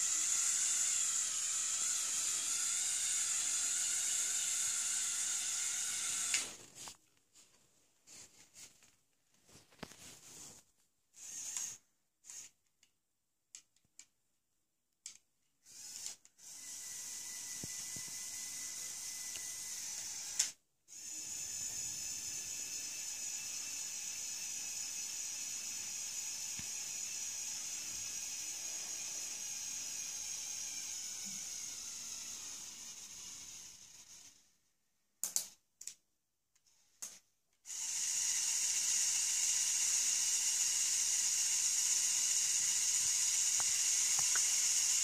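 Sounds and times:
toy electric motor whining: 0:00.0 - 0:06.6, 0:11.2 - 0:12.6, 0:15.6 - 0:34.6, 0:37.6 - 0:45.0.

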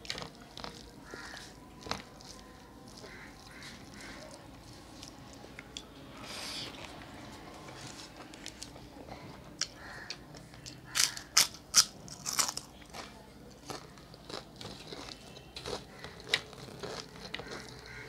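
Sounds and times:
chips crunching: 0:00.0 - 0:05.9, 0:09.6 - 0:18.0
person chewing: 0:00.0 - 0:07.1, 0:09.6 - 0:18.0.

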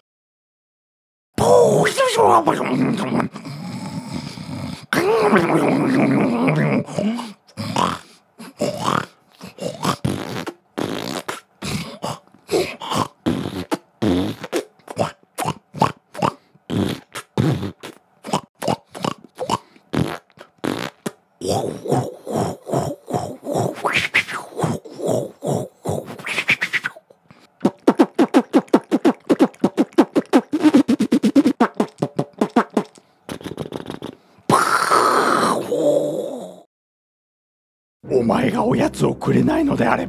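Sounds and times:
person beatboxing: 0:08.6 - 0:27.0, 0:27.6 - 0:35.7.

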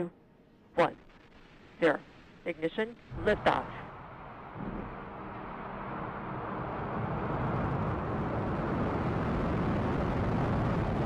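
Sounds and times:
rocket engines roaring at liftoff: 0:03.0 - 0:11.0.

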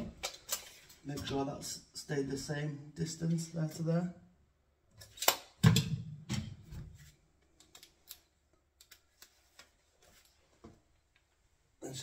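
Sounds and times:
tape measure retracting and snapping shut: 0:05.0 - 0:05.9.

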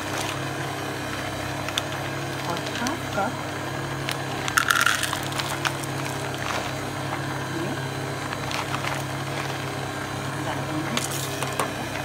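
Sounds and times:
chocolate chips rattling into cup: 0:04.5 - 0:06.6.

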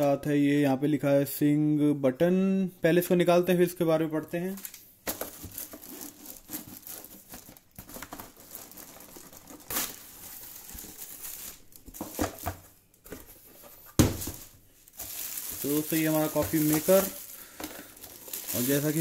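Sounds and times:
plastic wrapping crinkling: 0:04.5 - 0:19.0
cardboard box rustling: 0:05.2 - 0:17.2.

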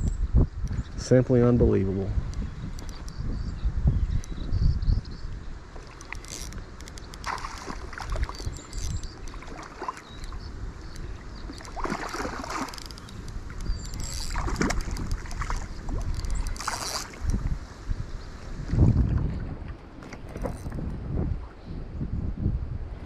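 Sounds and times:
wind buffeting microphone: 0:00.0 - 0:23.0
faint clicks: 0:02.3 - 0:03.2, 0:05.8 - 0:17.5.

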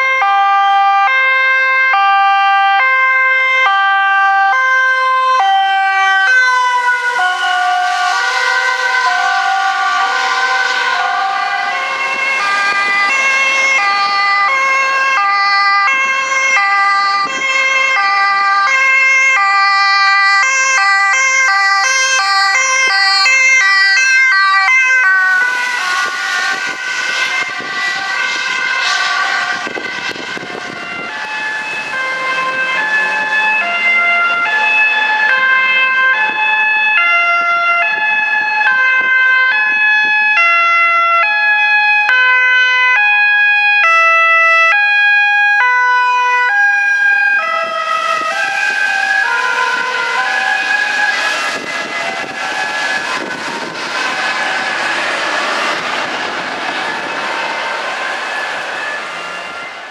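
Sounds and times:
ambulance two-tone sirens: 0:00.0 - 0:59.9
vehicle passing close: 0:04.8 - 0:17.4, 0:21.4 - 0:36.6, 0:45.7 - 0:59.9.

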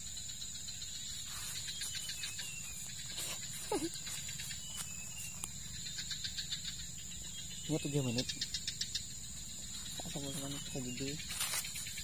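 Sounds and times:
insects chirring: 0:00.0 - 0:12.0
faint ticks: 0:04.0 - 0:06.2.

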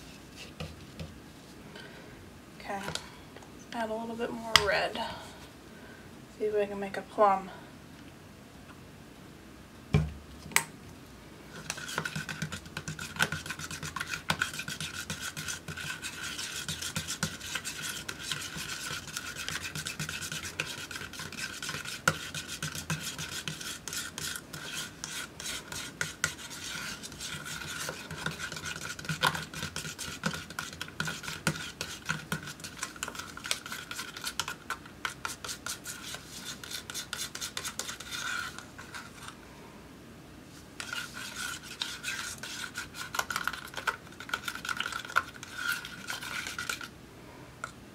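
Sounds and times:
palette knife scraping paint in cup: 0:11.5 - 0:39.4, 0:40.8 - 0:46.9.

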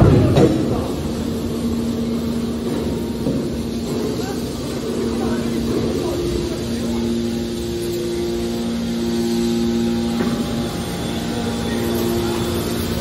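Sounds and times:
hydraulic power unit humming: 0:00.0 - 0:13.0.

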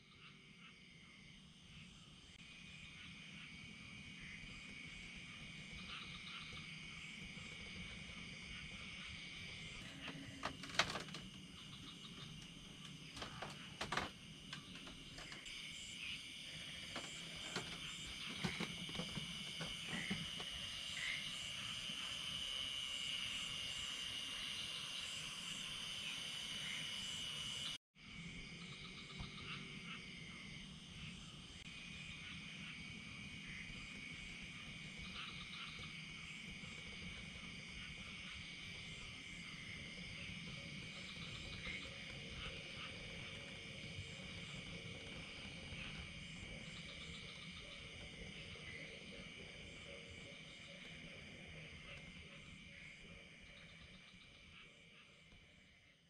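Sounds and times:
insects and frogs chirring: 0:00.0 - 0:56.0
scattered clicks and knocks: 0:09.8 - 0:15.5, 0:16.6 - 0:20.7.

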